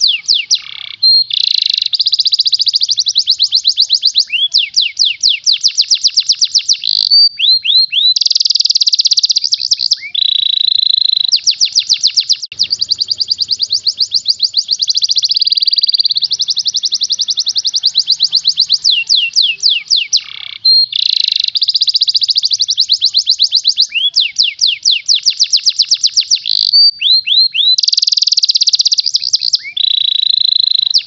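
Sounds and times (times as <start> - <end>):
canary singing rapid trills: 0.0 - 31.0.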